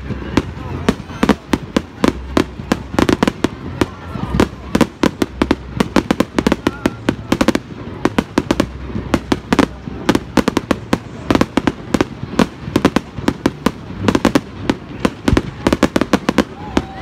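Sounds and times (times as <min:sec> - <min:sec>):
fireworks bursting with sharp bangs: 0:00.0 - 0:17.0.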